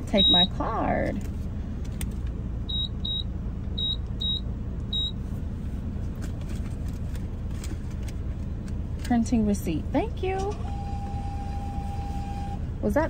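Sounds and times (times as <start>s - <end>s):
car engine idling: 0.0s - 13.0s
card reader short high beeps: 0.1s - 0.6s, 2.7s - 3.2s, 3.8s - 4.4s, 5.0s - 5.2s.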